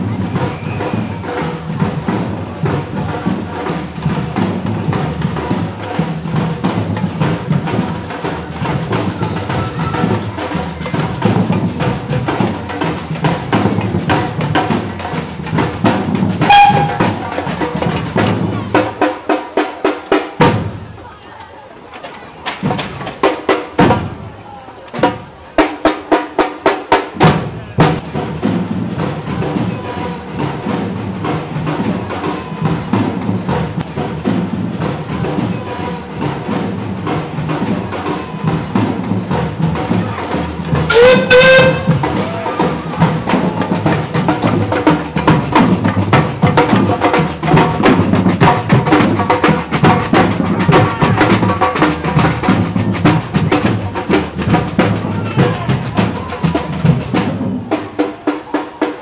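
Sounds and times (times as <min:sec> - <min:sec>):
drum-led music: 0:00.0 - 0:21.0, 0:25.0 - 0:59.0
steam-engine whistle blast: 0:16.4 - 0:17.3, 0:40.9 - 0:42.4.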